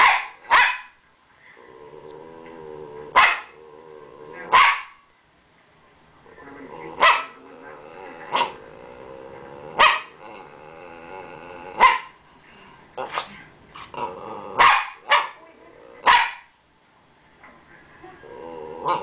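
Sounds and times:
dog barking: 0:00.0 - 0:01.0, 0:03.2 - 0:03.5, 0:04.5 - 0:05.0, 0:07.0 - 0:07.4, 0:09.8 - 0:10.2, 0:11.8 - 0:12.2, 0:14.6 - 0:15.4, 0:16.0 - 0:16.5
dog growling low: 0:01.6 - 0:04.5, 0:06.6 - 0:11.8, 0:13.8 - 0:14.6, 0:18.2 - 0:19.0.

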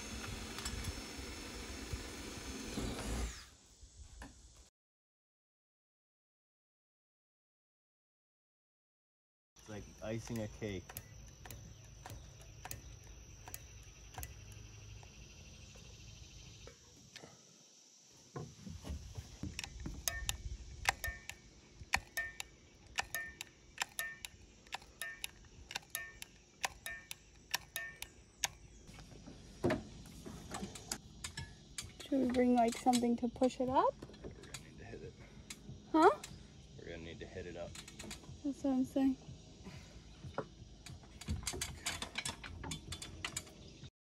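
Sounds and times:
caulking gun clicking: 0:09.9 - 0:15.2, 0:19.4 - 0:28.8.

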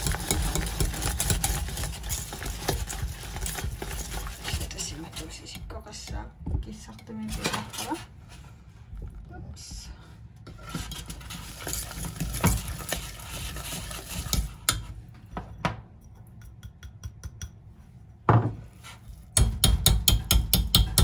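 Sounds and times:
whisk knocking against pot: 0:00.0 - 0:04.6, 0:19.4 - 0:21.0
whisk beating dough in saucepan: 0:00.0 - 0:06.3, 0:10.5 - 0:15.0.

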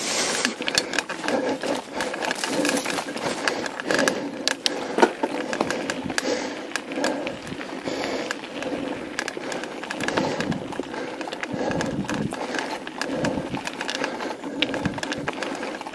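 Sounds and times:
tyres crunching over stones: 0:00.0 - 0:15.9
chain and frame rattling: 0:00.5 - 0:07.6.

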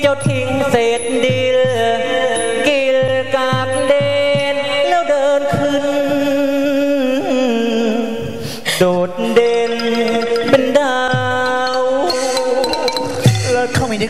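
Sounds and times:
backing band: 0:08.6 - 0:14.0
wavering held melody notes: 0:09.0 - 0:14.0
sharp percussive hit: 0:09.4 - 0:14.0.

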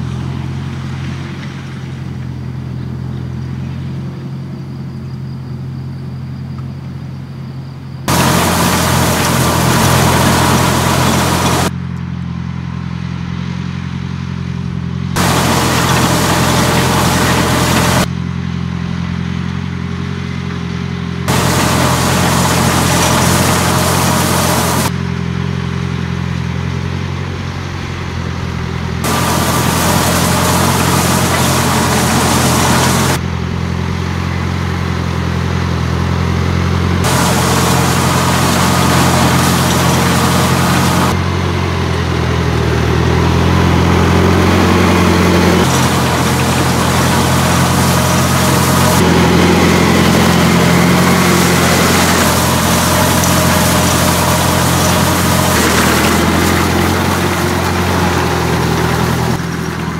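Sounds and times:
tractor engine drone: 0:00.0 - 0:59.9
hay rake machinery hiss and clatter: 0:08.1 - 0:11.8, 0:15.2 - 0:18.1, 0:21.3 - 0:25.5, 0:29.0 - 0:33.2, 0:36.2 - 0:59.9.

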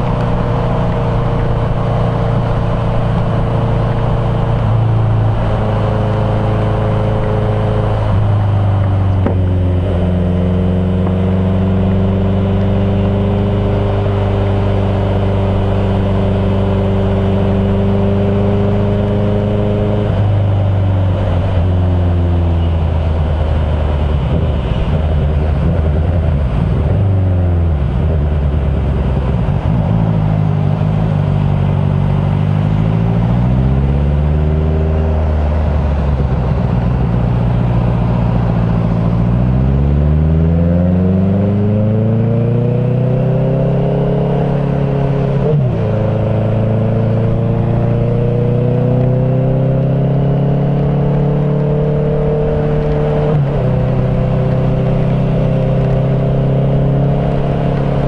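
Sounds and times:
wind and road noise: 0:00.0 - 0:58.0.

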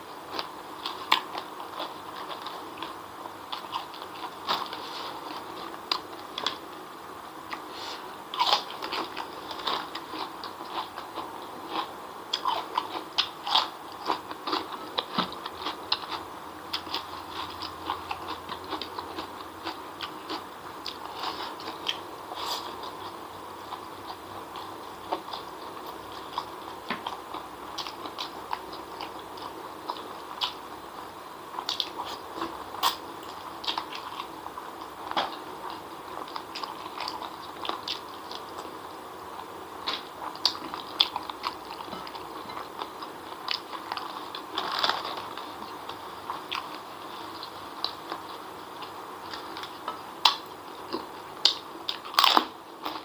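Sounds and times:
steady background hum: 0:00.0 - 0:53.0
chewing and lip-smacking: 0:08.3 - 0:30.6, 0:31.5 - 0:38.7.

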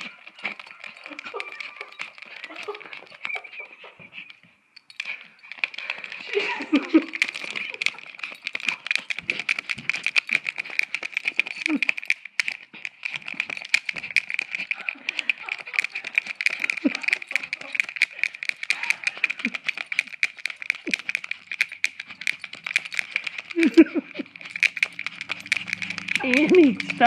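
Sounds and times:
dog growling: 0:00.0 - 0:04.1, 0:13.1 - 0:27.0
claws and teeth scratching device: 0:00.0 - 0:27.0.

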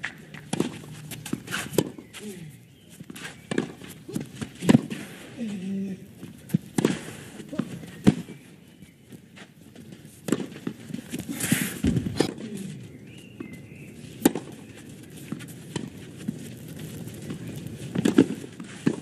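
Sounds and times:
tennis ball struck by racket: 0:00.3 - 0:02.1, 0:03.1 - 0:05.2, 0:06.5 - 0:08.3, 0:10.2 - 0:12.5, 0:14.2 - 0:14.5, 0:17.9 - 0:19.0.

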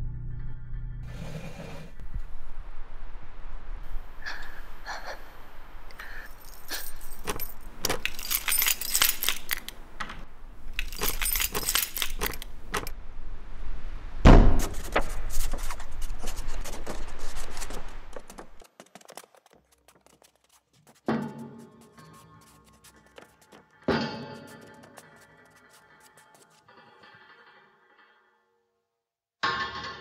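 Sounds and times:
metal keys jangling: 0:06.2 - 0:12.9.

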